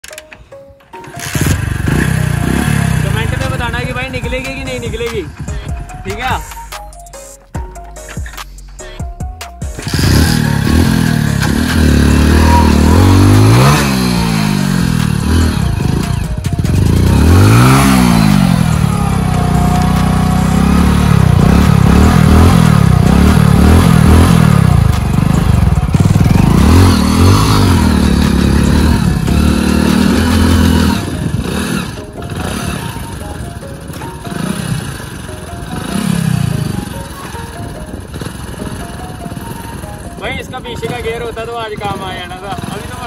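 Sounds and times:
motorcycle engine revving: 0.9 - 6.3, 9.6 - 43.0.

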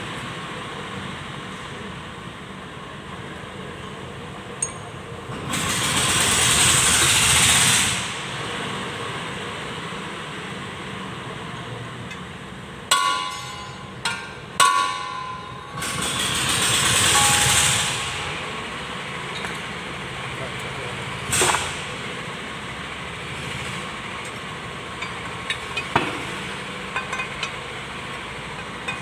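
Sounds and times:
vehicle engine: 0.0 - 14.6, 15.5 - 29.0
metal clanks: 4.6 - 4.9, 12.9 - 18.5, 19.3 - 19.7, 21.3 - 21.9, 24.2 - 29.0.

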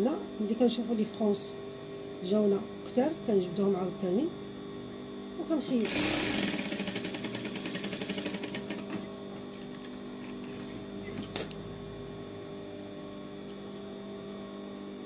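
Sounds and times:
steady hum: 0.0 - 15.0
sewing machine stitching fast: 5.8 - 8.9.

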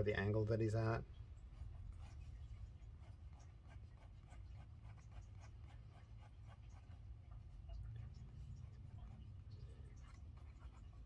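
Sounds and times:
low steady hum: 0.0 - 11.0
pencil scratching on paper: 1.5 - 7.7, 8.7 - 11.0.

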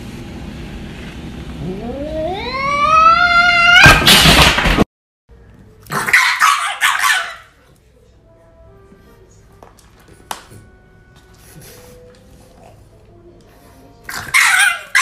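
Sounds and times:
cat yowling and screeching: 1.6 - 4.1.

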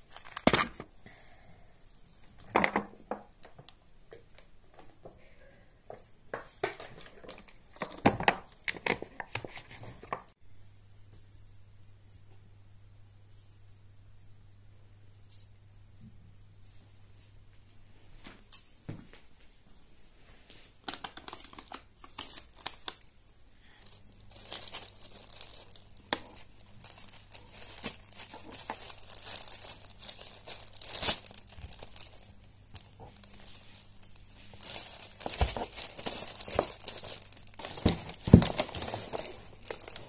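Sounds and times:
plastic bag crinkling: 0.0 - 0.8, 23.6 - 40.0.

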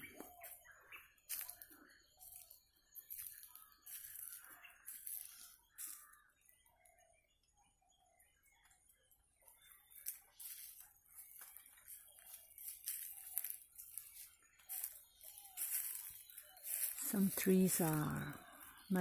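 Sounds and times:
footsteps on dry leaves: 1.3 - 6.2, 9.8 - 19.0.

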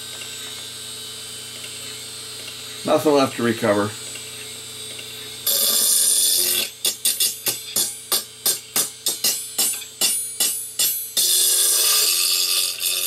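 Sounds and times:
metallic scraping screech: 11.2 - 13.0.

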